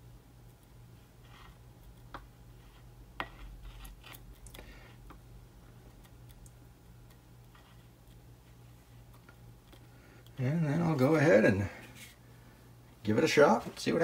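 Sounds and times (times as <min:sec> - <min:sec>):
glue stick scratching on glass: 0:02.6 - 0:04.2.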